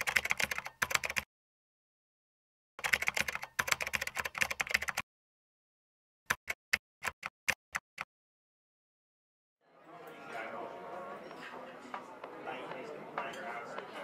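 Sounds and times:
computer keyboard typing: 0.0 - 1.3, 2.8 - 5.0, 6.3 - 8.1.

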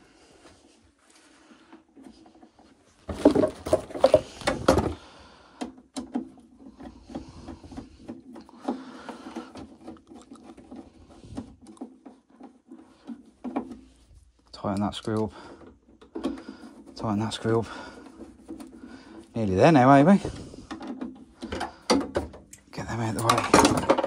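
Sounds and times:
plastic cover rubbing and clattering: 1.9 - 5.0, 5.9 - 14.5, 15.1 - 24.0
clicks and knocks: 20.3 - 24.0.

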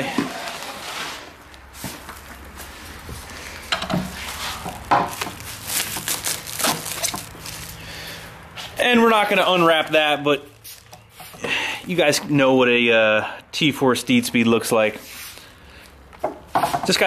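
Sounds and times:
plastic wrap crinkling: 0.0 - 8.2.

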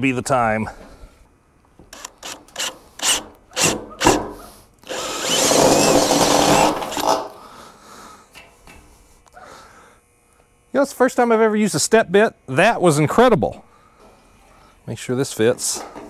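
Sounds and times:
power drill cutting metal: 1.9 - 4.2, 4.8 - 7.3.

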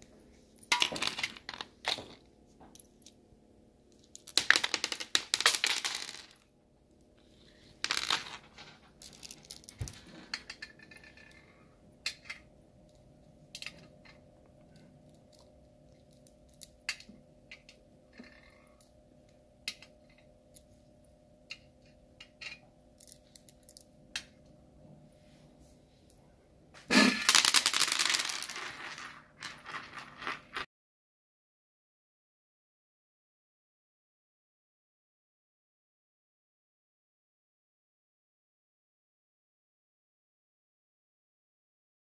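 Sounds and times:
candies rattling in hand: 7.9 - 10.0, 27.2 - 30.6.

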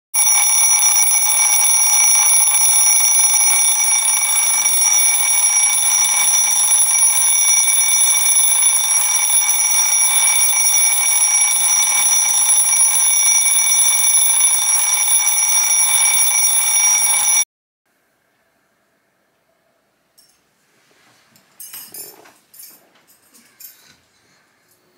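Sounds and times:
phone alarm ringing: 0.2 - 17.5.

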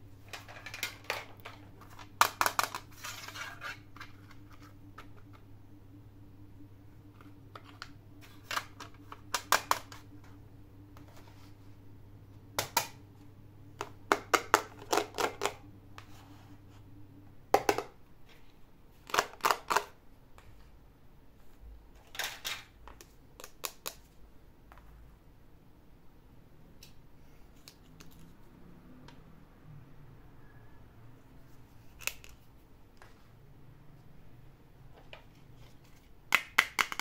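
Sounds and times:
plastic toy pieces clicking: 36.4 - 37.0.

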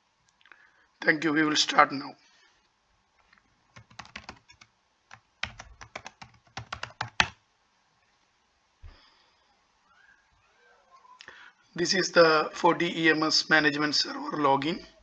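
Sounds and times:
typing on computer keyboard: 3.7 - 7.4.

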